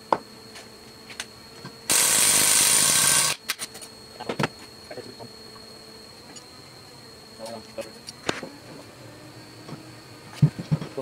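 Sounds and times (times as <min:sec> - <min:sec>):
cordless power tool running: 0:01.9 - 0:03.5.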